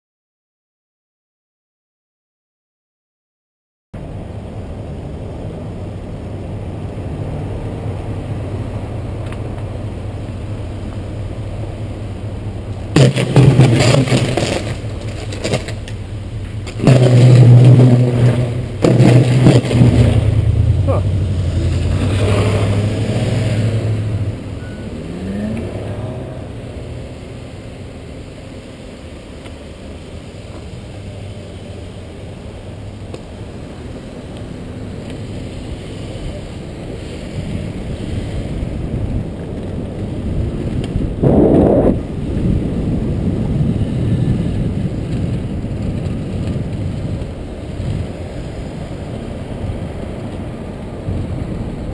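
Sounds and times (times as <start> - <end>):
car engine running: 4.0 - 36.0
car pulling away: 4.0 - 51.9
road and wind noise: 4.0 - 51.9.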